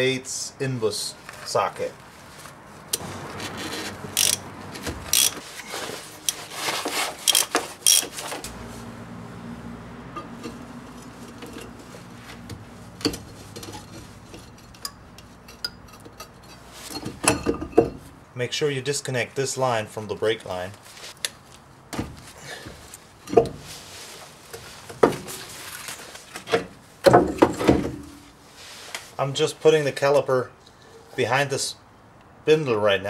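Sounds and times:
ratchet wrench clicking: 0:03.6 - 0:04.4, 0:05.1 - 0:05.4, 0:07.2 - 0:08.1
low steady hum: 0:08.4 - 0:18.3.

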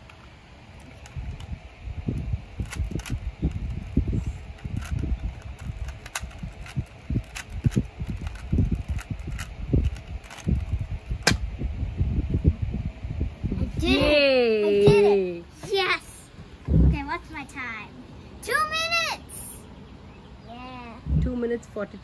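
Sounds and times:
puzzle cube plastic clicks: 0:02.6 - 0:10.7
low handling thumps: 0:16.5 - 0:17.2.

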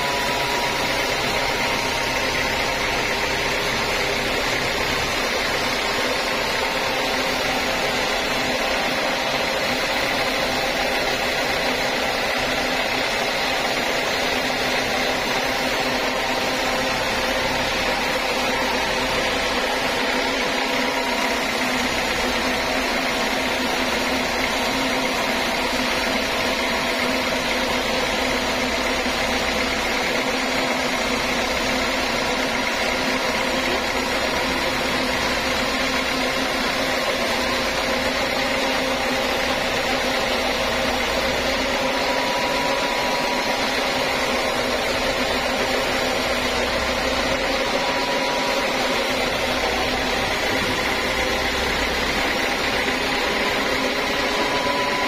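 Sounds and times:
band sawmill sawing log: 0:33.5 - 0:55.0.

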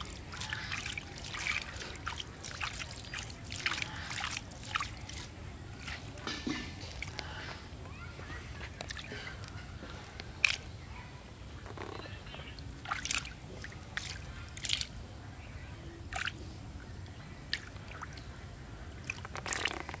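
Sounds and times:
fish flapping and splashing: 0:00.0 - 0:05.4.

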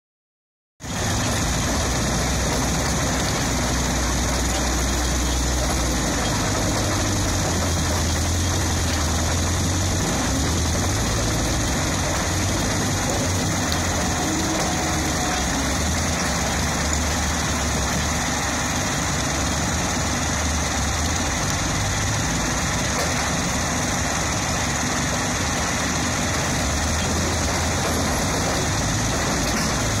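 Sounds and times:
crusher and excavator diesel hum: 0:00.8 - 0:30.0.

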